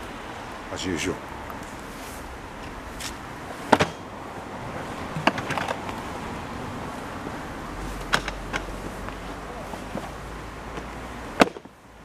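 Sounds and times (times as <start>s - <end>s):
outdoor background noise: 0.0s - 12.0s
sharp knocks: 3.7s - 4.1s.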